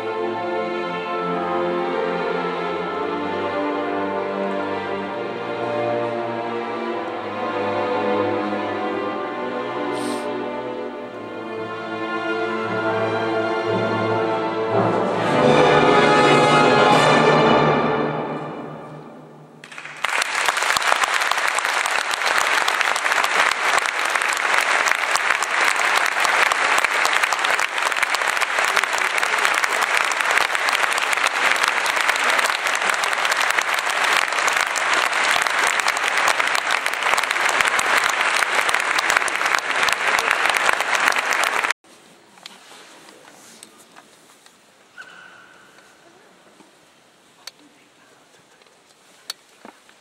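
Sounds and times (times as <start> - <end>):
audience applauding: 19.6 - 41.8.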